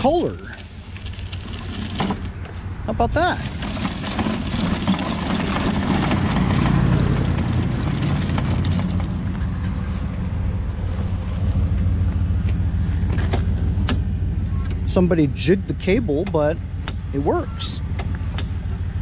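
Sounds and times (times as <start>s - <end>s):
push mower rolling over asphalt: 0.0s - 10.1s
low vehicle engine hum: 0.0s - 19.0s.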